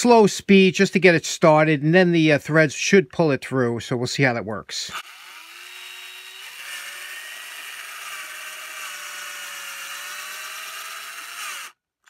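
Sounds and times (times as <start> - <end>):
cordless drill motor whine: 4.9 - 11.8.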